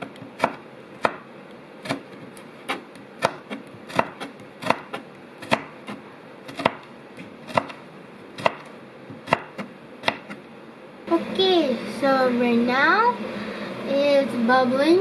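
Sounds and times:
knife chopping on cutting board: 0.0s - 7.8s, 8.4s - 10.4s.

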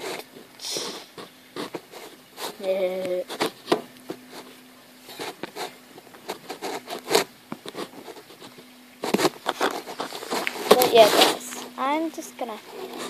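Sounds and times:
handling rustle and clicks: 0.0s - 11.8s
faint steady hum: 0.0s - 13.0s.

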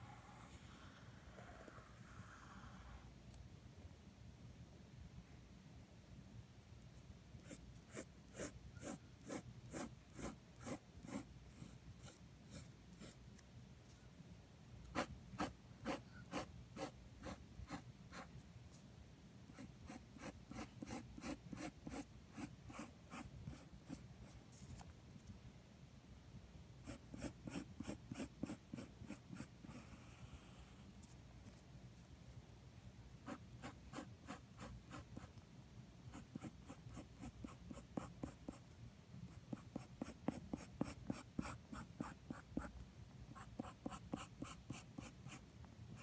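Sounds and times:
pencil scratching on paper: 7.4s - 13.2s, 14.9s - 18.3s, 19.5s - 24.6s, 26.8s - 30.7s, 33.2s - 35.4s, 36.1s - 38.6s, 39.3s - 42.7s, 43.4s - 45.4s.

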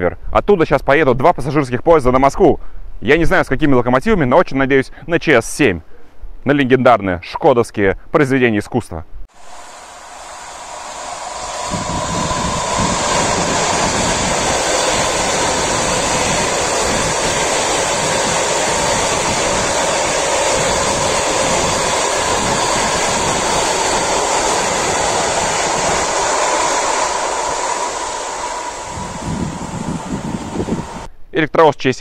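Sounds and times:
electric train passing: 9.3s - 31.1s
steady hum: 9.3s - 31.1s
wheels rushing on rails: 9.3s - 31.1s.

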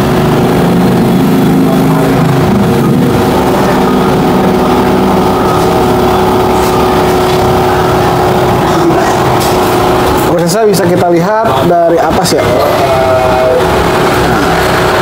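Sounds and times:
motor humming: 0.0s - 10.5s.

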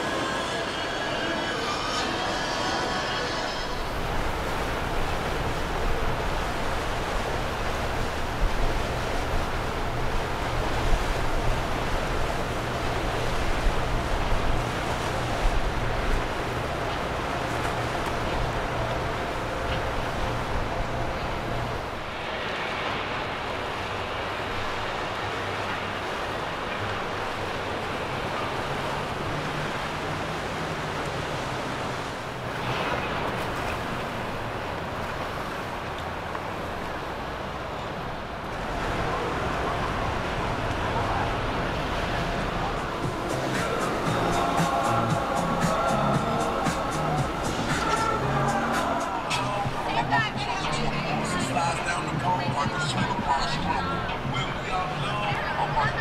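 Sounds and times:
low engine drone: 0.0s - 22.2s, 38.7s - 55.9s
hull wash and spray hissing: 0.0s - 56.0s
water rushing from boat wake: 0.0s - 56.0s.

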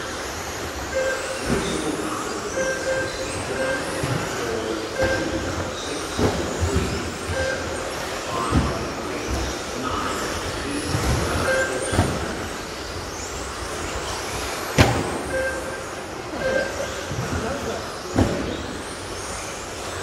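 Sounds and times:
short beeps: 0.9s - 5.8s, 7.2s - 8.0s, 11.4s - 12.2s, 15.2s - 17.2s.

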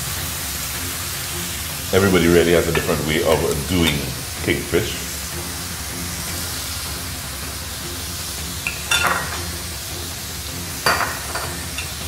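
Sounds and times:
food sizzling in a frying pan: 0.0s - 12.0s
utensil clattering against pan: 8.6s - 9.5s, 10.8s - 12.0s.

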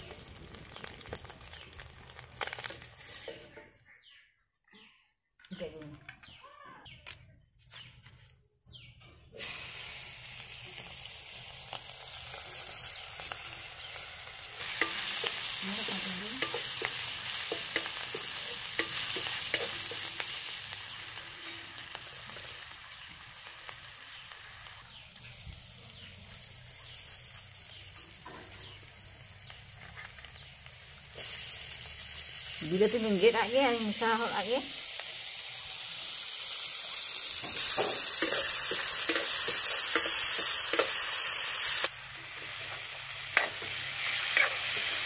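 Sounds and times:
vegetables sizzling in hot oil: 0.0s - 3.5s, 9.4s - 45.0s
metal ladle clicking against pan: 16.4s - 19.8s.

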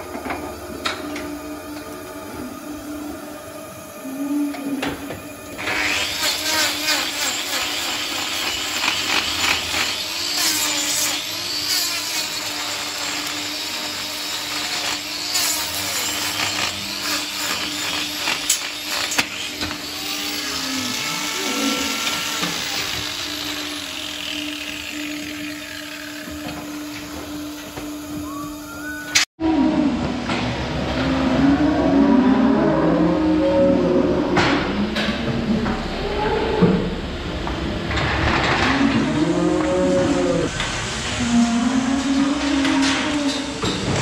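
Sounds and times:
angle grinder grinding hoof: 0.0s - 29.2s.

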